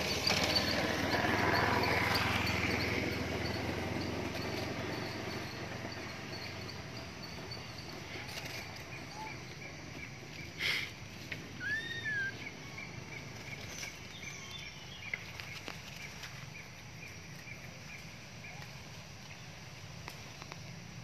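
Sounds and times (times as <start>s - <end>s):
steady forest hiss: 0.0s - 21.0s
whistled bird call: 8.4s - 9.7s, 11.6s - 12.7s.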